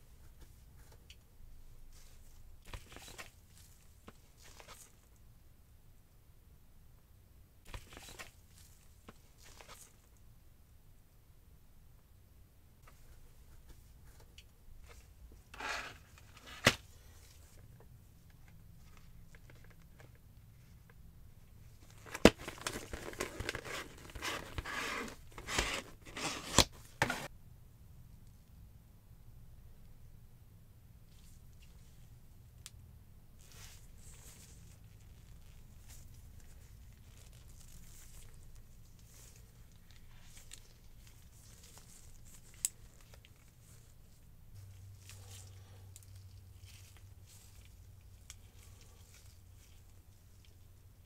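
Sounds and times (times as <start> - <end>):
gloved hands rustling: 12.8 - 27.3, 33.3 - 51.0
plastic blister pack crinkling: 21.8 - 27.1, 33.4 - 50.6.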